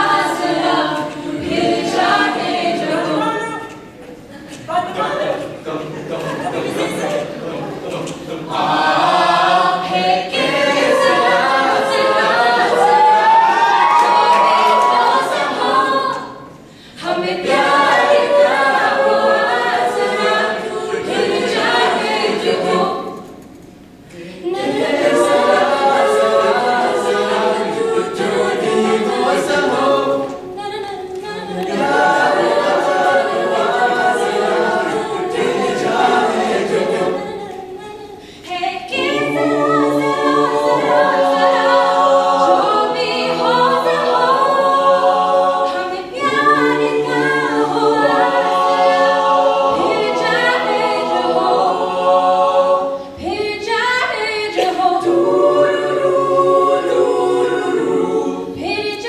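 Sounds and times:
a cappella group singing: 0.0s - 59.0s
woman singing lead: 30.3s - 31.9s.

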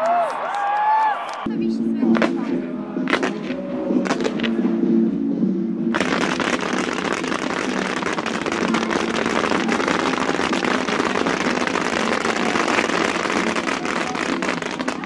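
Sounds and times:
fireworks crackling: 2.0s - 4.7s, 5.9s - 15.0s.

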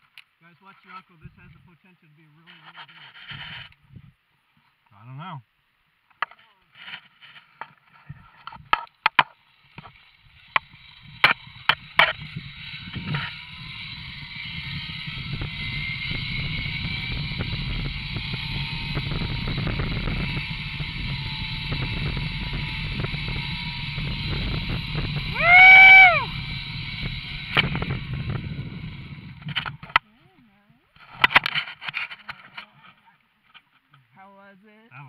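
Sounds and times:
zipline trolley rumble and whir: 6.8s - 30.0s, 31.0s - 33.0s.

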